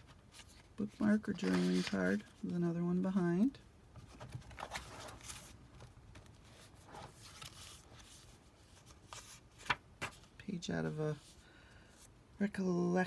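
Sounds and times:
paper pages rustling: 0.0s - 2.5s, 4.0s - 10.3s.

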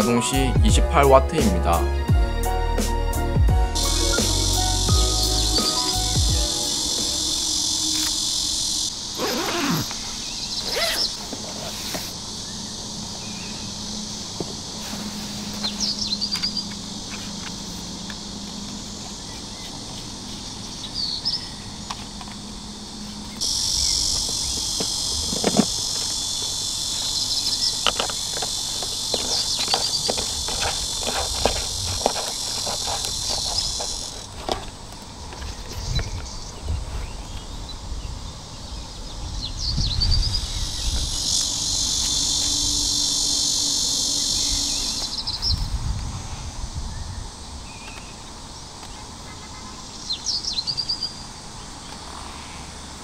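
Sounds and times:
insects chorus: 0.0s - 53.0s
fabric bag unzipping: 9.2s - 9.9s
plastic parts clicking: 27.7s - 35.1s.

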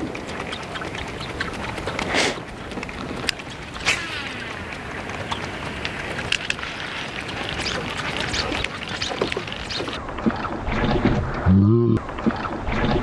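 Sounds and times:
wind and water hiss: 0.0s - 10.0s
lure clicking and splashing: 0.0s - 10.6s.

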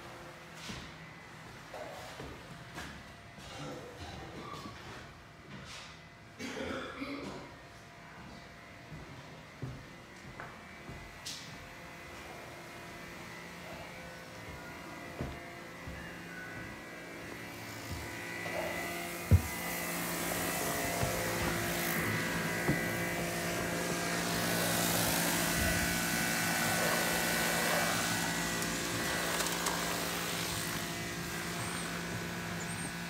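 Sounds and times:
pressure washer engine running: 17.4s - 33.0s.

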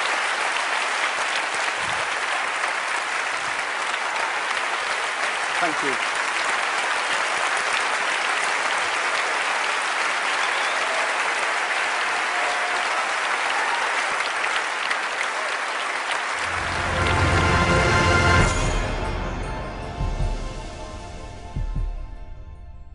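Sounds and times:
audience applauding: 0.0s - 19.8s.

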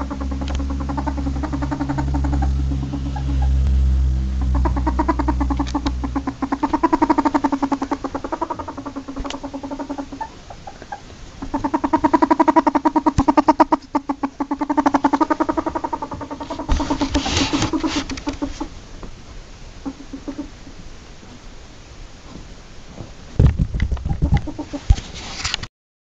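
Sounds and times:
ferret dooking: 0.0s - 18.8s, 19.8s - 20.8s, 23.9s - 25.1s
low hum: 0.0s - 20.2s.

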